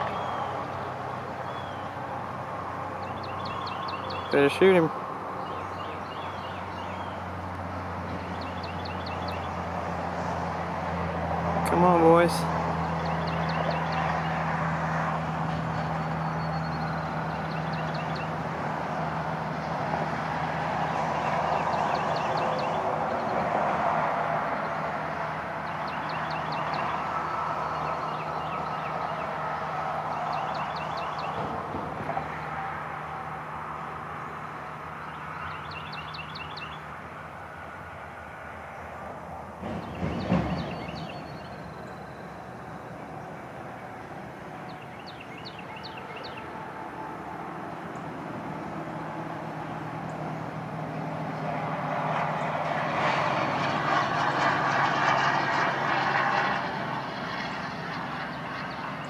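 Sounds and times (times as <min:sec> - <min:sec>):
songbird singing high notes: 0:00.0 - 0:02.0, 0:03.0 - 0:04.6, 0:44.7 - 0:46.5.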